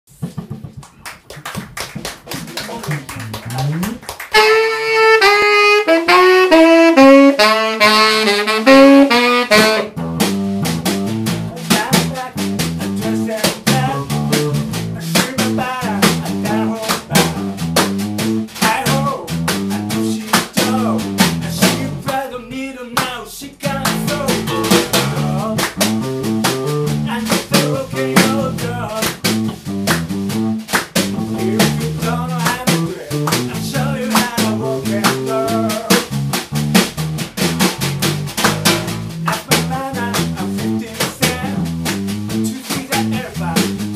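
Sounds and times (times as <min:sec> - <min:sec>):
drum kit groove: 0:00.1 - 0:22.3, 0:23.0 - 0:43.9
electric bass: 0:02.9 - 0:22.2, 0:23.6 - 0:43.9
lead instrument melody: 0:03.2 - 0:11.2, 0:23.7 - 0:39.2.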